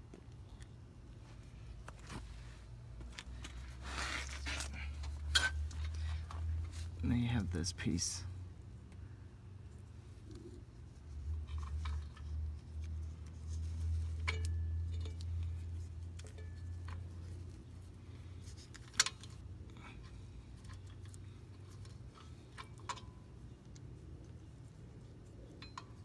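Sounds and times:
small metal clicks and scraping: 3.0 - 7.0, 11.2 - 26.0.

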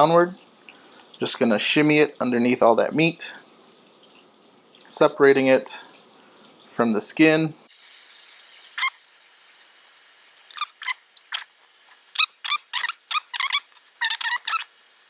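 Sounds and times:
knife squeaking on fish skin: 10.5 - 11.5, 12.2 - 14.7.

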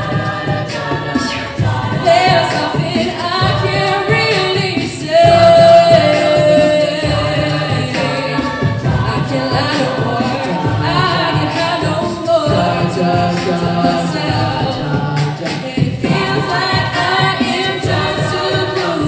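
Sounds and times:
female a cappella group singing: 0.0 - 19.0
lead voice holding a long note: 12.5 - 15.8.

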